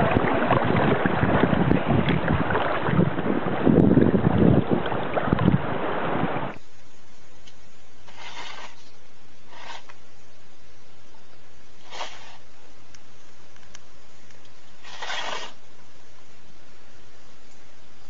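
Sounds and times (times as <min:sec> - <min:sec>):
water splashing: 0:00.0 - 0:06.6
wind on microphone: 0:00.0 - 0:06.6
steady low hum: 0:00.0 - 0:18.0.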